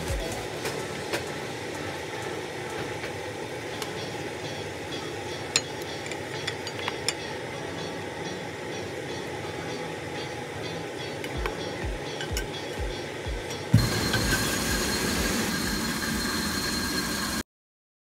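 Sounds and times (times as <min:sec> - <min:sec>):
steady background hum: 0:00.0 - 0:16.8
utensil clinking on pot and plate: 0:05.5 - 0:07.4.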